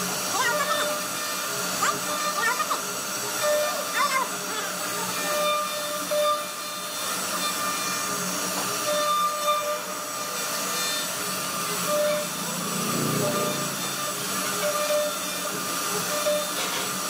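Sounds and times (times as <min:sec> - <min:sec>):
router bit milling wood: 0:00.0 - 0:17.0
short spindle whine: 0:07.4 - 0:16.8.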